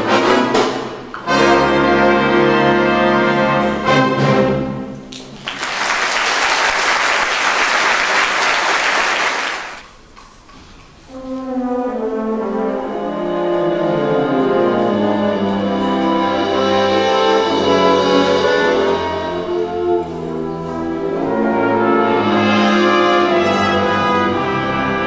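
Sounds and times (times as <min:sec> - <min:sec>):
orchestra with brass: 0:00.0 - 0:09.8, 0:11.0 - 0:25.0
audience applause: 0:05.1 - 0:09.9.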